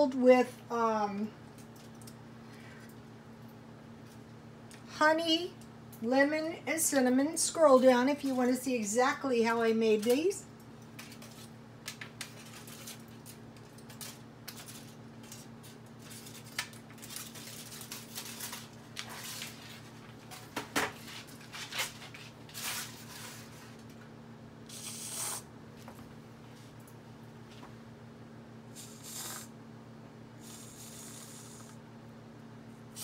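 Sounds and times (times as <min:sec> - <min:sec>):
steady low hum: 0:00.0 - 0:33.0
aerosol can spraying: 0:24.7 - 0:25.4, 0:28.8 - 0:29.5.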